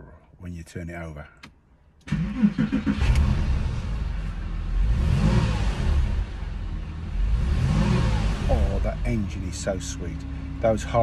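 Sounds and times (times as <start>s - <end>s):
car engine starting and idling: 1.2s - 11.0s.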